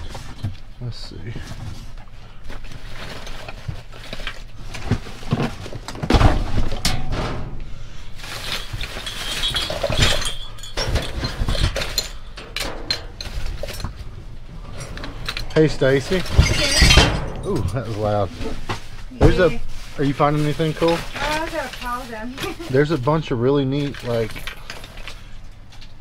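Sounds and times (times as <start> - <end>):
rustling: 0.0 - 26.0
trash knocking and clattering: 1.3 - 22.9
heavy thuds: 4.7 - 8.3
glassy clinks: 8.5 - 11.3.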